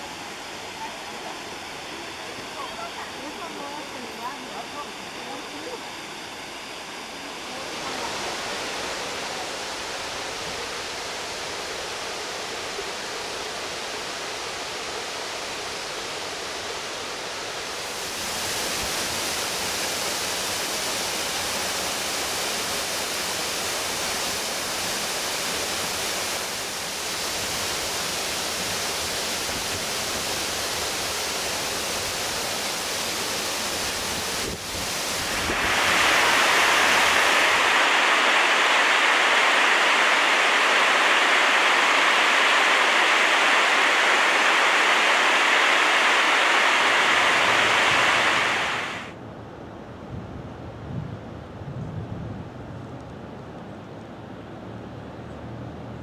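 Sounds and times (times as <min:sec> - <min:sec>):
waterfall rushing: 0:07.4 - 0:13.1, 0:22.9 - 0:49.2.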